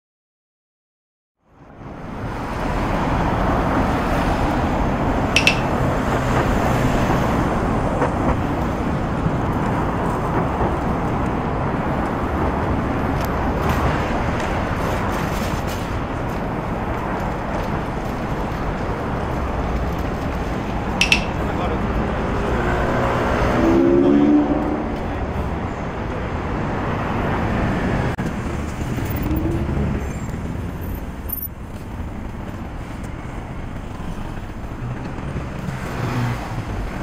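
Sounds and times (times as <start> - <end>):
city street traffic: 1.4 - 37.0
short sharp clink: 5.4 - 5.8, 21.0 - 21.4.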